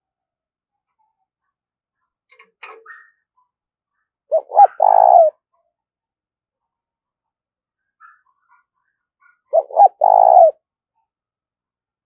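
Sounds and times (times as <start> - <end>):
dove cooing: 4.3 - 5.4, 9.5 - 10.6.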